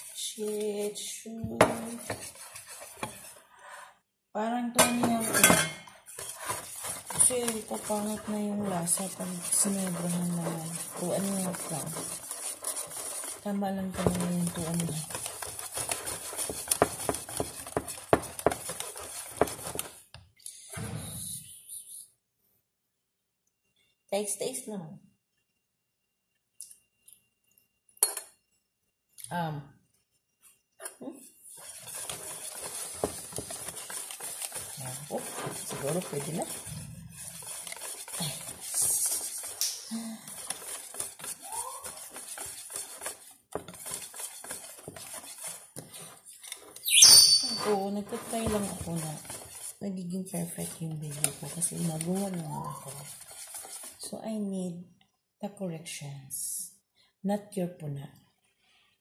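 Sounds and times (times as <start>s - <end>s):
whisk clicking against bowl: 6.1s - 19.9s, 31.6s - 46.8s, 47.6s - 49.7s, 50.6s - 54.0s.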